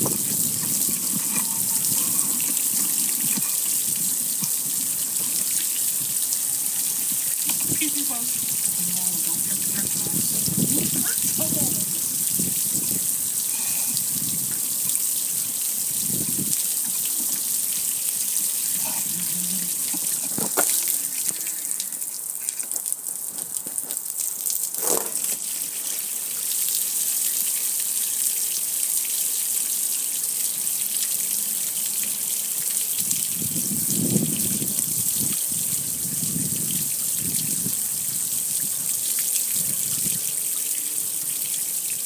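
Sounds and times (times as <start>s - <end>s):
hose spraying onto metal grill: 24.8s - 26.1s.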